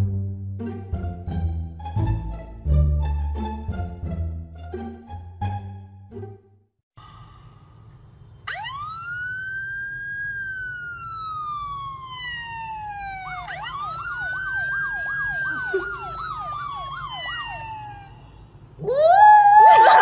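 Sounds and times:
siren wail: 8.4s - 20.0s
siren yelp: 8.4s - 20.0s.

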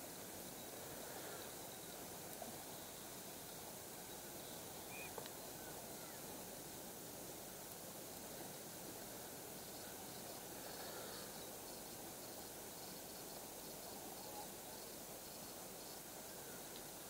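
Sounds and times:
faint hiss: 0.0s - 17.0s
faint bird chirps: 4.0s - 6.3s.

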